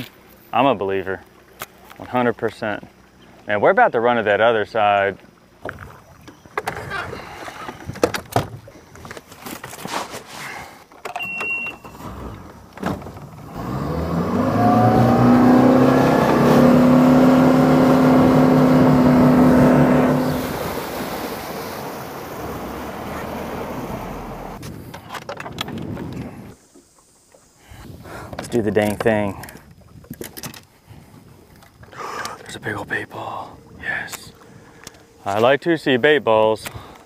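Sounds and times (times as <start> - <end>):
rush of wind and water: 0.0 - 9.7, 13.0 - 37.0
outboard motor running: 12.0 - 24.6.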